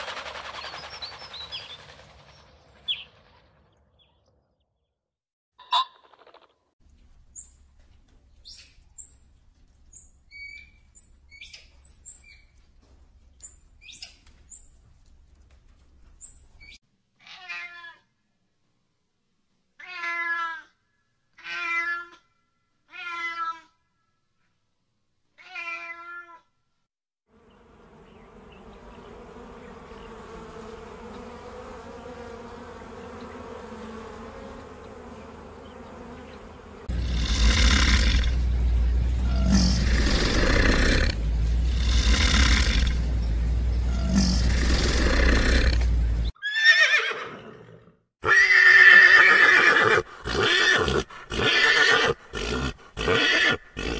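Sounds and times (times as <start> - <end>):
cat meowing: 17.2 - 18.1, 19.8 - 20.7, 21.4 - 22.2, 22.9 - 23.7, 25.4 - 26.4.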